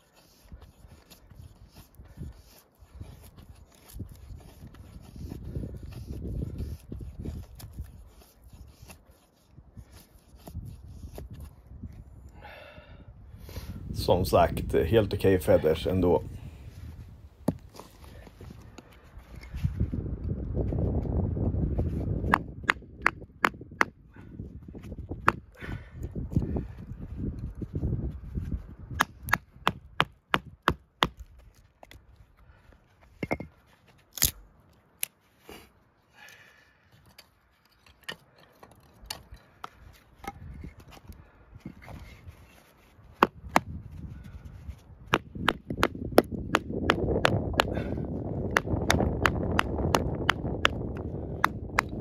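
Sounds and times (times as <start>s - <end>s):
wood splitting rough noise: 36.3s - 52.0s.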